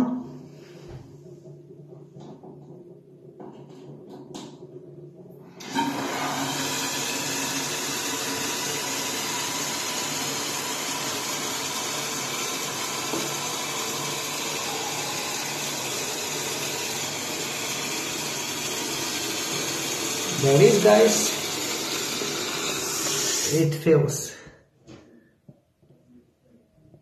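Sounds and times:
fill valve opening: 0:05.6 - 0:23.6
water hissing into cistern: 0:05.6 - 0:24.3.

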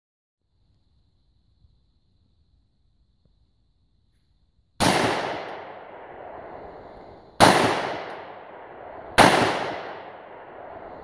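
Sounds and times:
rifle shots with echo: 0:04.8 - 0:11.0.

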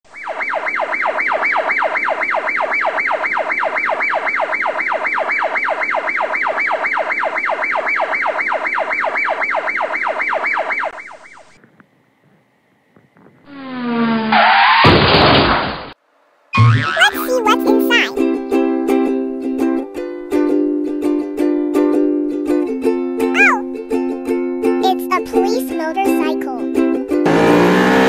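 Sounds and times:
emergency siren yelping: 0:00.1 - 0:11.3.

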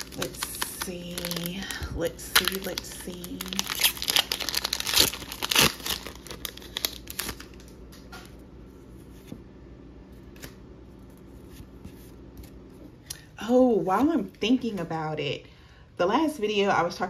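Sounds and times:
foil wrapper crinkling and tearing: 0:00.0 - 0:07.8.

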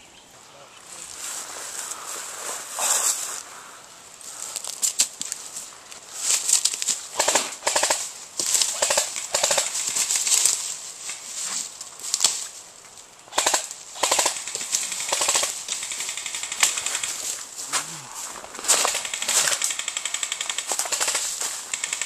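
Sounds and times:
airsoft guns firing bursts: 0:07.1 - 0:08.1, 0:08.7 - 0:10.0, 0:13.3 - 0:17.4, 0:18.6 - 0:22.0.

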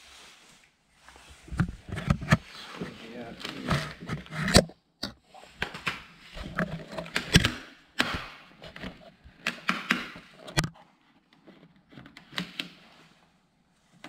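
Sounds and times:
film rustling: 0:01.0 - 0:04.6.

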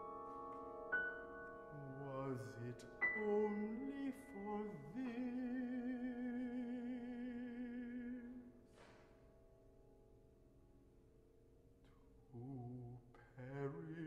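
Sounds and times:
piano accompaniment: 0:00.0 - 0:10.4
baritone singing: 0:01.7 - 0:08.6, 0:12.4 - 0:14.0.

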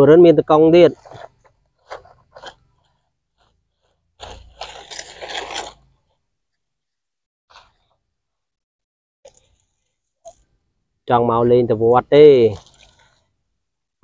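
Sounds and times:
plastic toy scraping through sand: 0:00.9 - 0:06.2, 0:12.3 - 0:13.4.

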